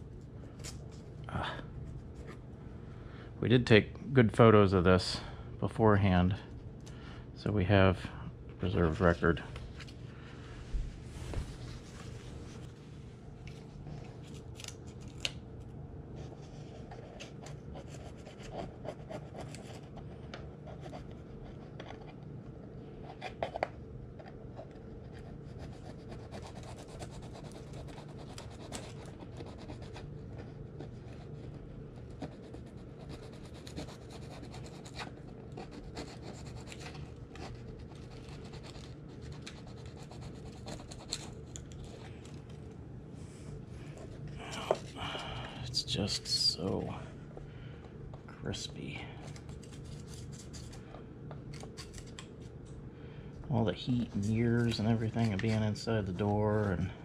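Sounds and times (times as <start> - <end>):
low hum: 35.1 - 57.0.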